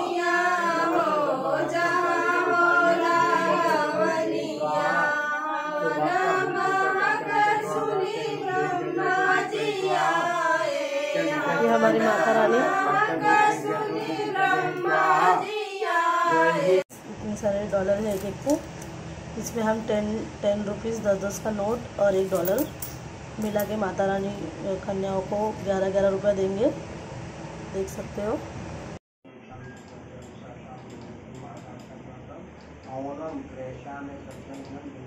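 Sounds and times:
group singing devotional song: 0.0s - 16.9s.

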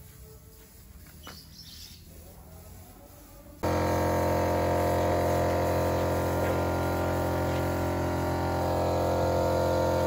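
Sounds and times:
air compressor motor humming: 3.6s - 10.0s.

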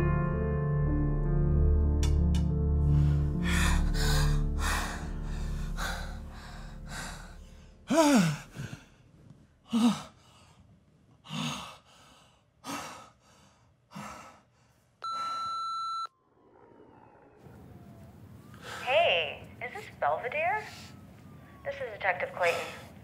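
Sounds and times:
breathy sighs and moans: 2.8s - 10.6s, 11.2s - 14.6s
phone ring tone: 15.0s - 16.2s.

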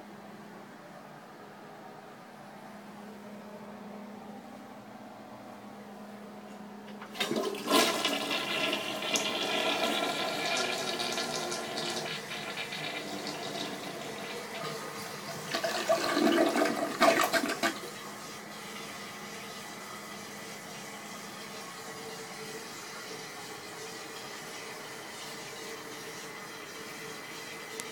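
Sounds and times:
toilet flushing: 6.9s - 27.9s
toilet refilling hiss: 7.0s - 21.6s.

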